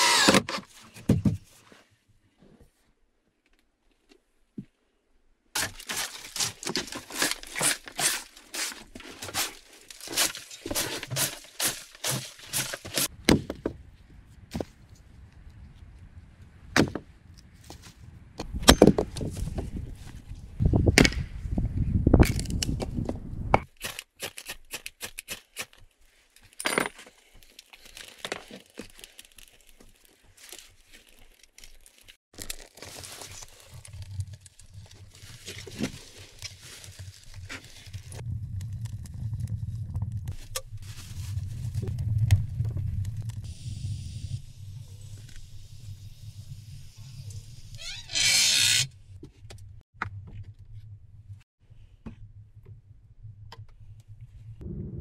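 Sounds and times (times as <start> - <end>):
wood cracking and snapping: 5.6 - 13.1
low thuds and rumbling: 54.5 - 55.0.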